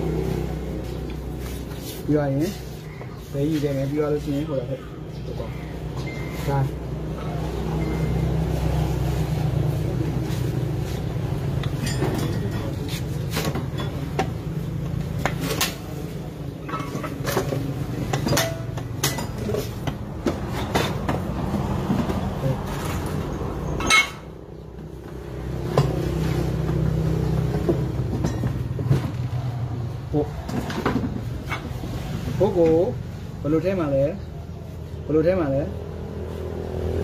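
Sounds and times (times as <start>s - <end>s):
hammer and tools tapping metal: 11.6s - 14.4s, 16.6s - 21.3s, 27.6s - 28.7s.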